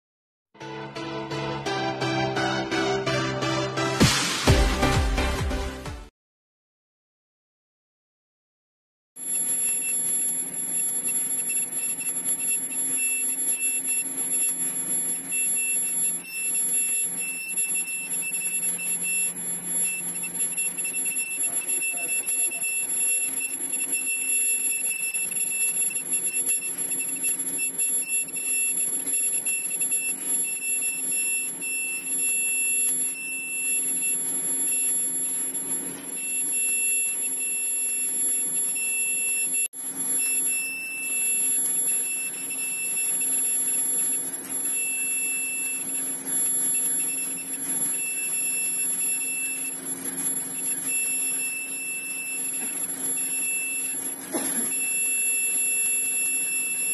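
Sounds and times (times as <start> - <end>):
shrill alarm-like beep: 9.2 - 54.1, 54.7 - 56.9
constant high-pitched tones: 10.6 - 39.6, 40.2 - 56.9.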